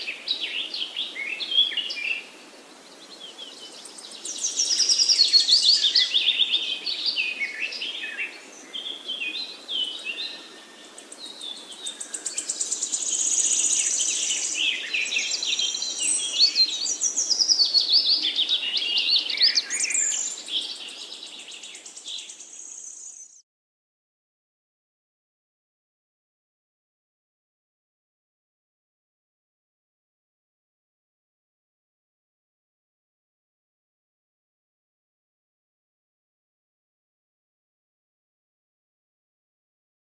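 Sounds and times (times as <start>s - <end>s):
faint background hiss: 0.0s - 23.4s.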